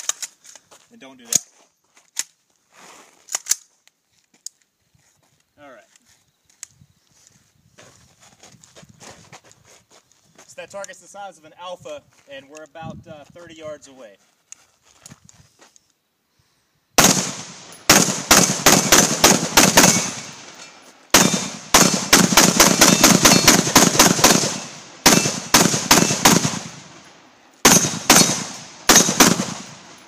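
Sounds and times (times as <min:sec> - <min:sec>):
rifle firing rapid shots: 0:17.0 - 0:20.5, 0:21.1 - 0:26.9, 0:27.6 - 0:29.9.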